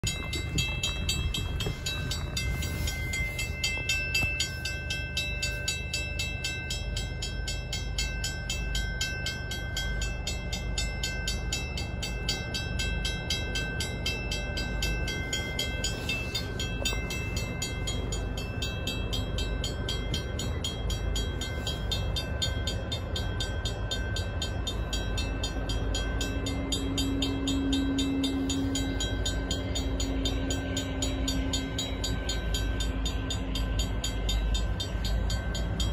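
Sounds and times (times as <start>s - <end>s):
crossing bell ringing: 0.0s - 35.9s
diesel locomotive rumble: 0.0s - 35.9s
faint low train horn: 0.3s - 7.0s, 24.9s - 35.9s.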